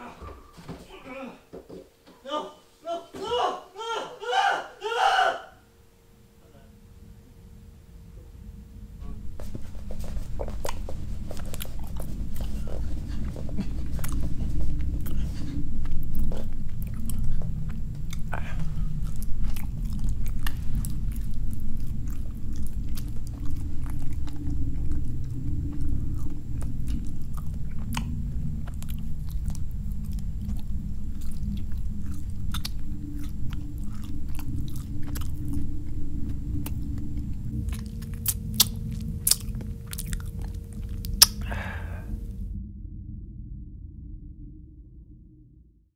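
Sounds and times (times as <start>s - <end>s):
continuous low rumble: 5.6s - 45.9s
chewing and crunching: 9.8s - 42.2s.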